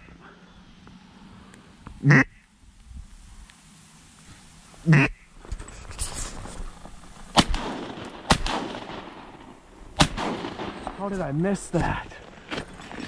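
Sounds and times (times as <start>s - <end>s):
duck quack: 2.0s - 2.4s, 4.8s - 5.3s
shotgun shots: 7.3s - 11.9s.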